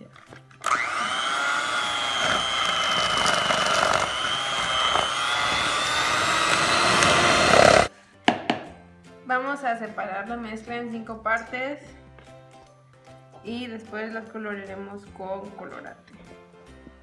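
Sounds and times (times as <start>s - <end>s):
electric hand mixer whirring: 0.6s - 7.9s.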